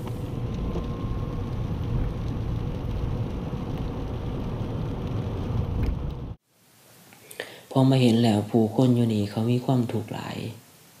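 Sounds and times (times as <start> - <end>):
car engine and road noise: 0.0 - 6.4.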